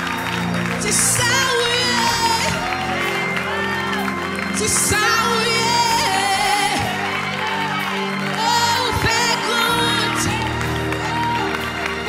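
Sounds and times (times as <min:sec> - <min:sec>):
woman singing into a microphone: 0:00.8 - 0:11.6.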